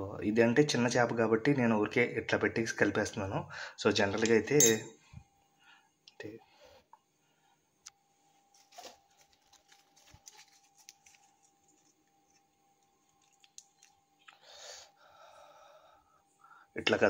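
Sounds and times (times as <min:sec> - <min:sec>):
scraping rustle: 0:08.5 - 0:12.4.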